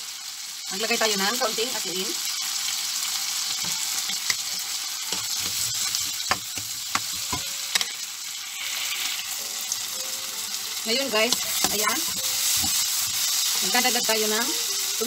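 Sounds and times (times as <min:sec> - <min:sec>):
vegetables sizzling in frying pan: 0:00.0 - 0:15.0
spoon scraping and knocking pan: 0:03.6 - 0:08.0, 0:11.2 - 0:14.1.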